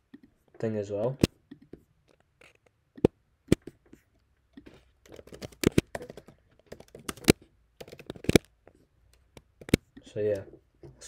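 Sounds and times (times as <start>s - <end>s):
computer keyboard key clicks: 5.1s - 8.5s.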